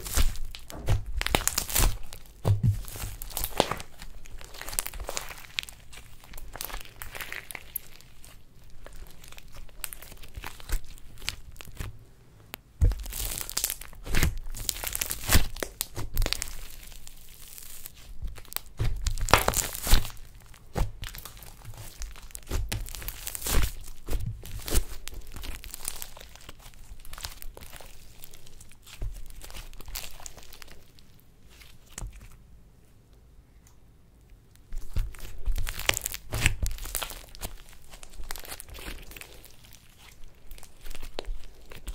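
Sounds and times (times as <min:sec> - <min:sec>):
slime squishing and crackling: 0:00.0 - 0:12.0, 0:12.8 - 0:32.4, 0:34.5 - 0:41.9.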